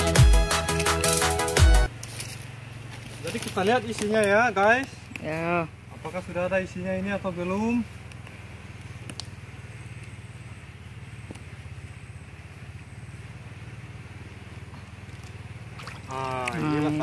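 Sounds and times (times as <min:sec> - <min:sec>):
small engine humming: 0:00.0 - 0:17.0
faint clicks: 0:08.0 - 0:09.4.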